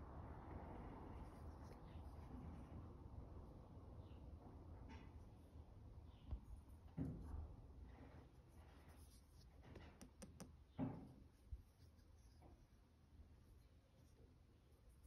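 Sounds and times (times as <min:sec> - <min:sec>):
soft handling rubs: 0:07.9 - 0:10.0, 0:11.2 - 0:15.0.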